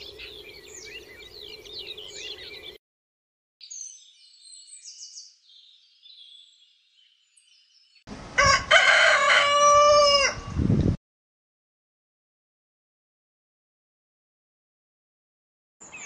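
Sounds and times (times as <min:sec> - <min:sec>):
rooster crowing: 0:08.4 - 0:10.6.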